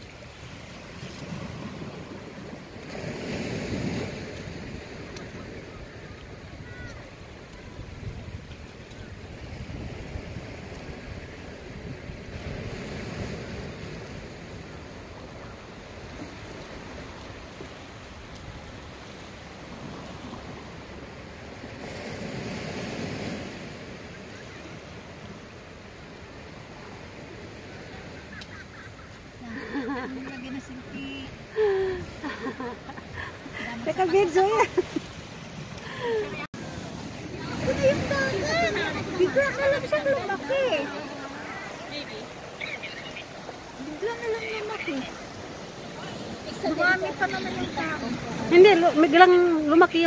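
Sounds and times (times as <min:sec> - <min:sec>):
waves washing against rocks: 0:00.0 - 0:50.0
wind on microphone: 0:00.9 - 0:19.0.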